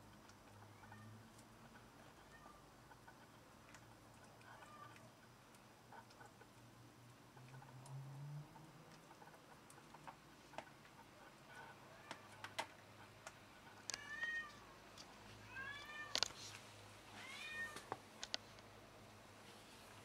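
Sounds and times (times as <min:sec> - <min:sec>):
cat meowing: 0:04.5 - 0:05.1, 0:14.0 - 0:14.6, 0:15.5 - 0:16.2, 0:17.1 - 0:17.9.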